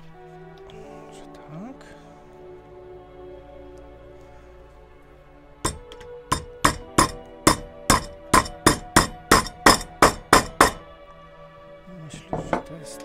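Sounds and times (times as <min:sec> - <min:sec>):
hammer blows on metal: 0:05.7 - 0:10.9.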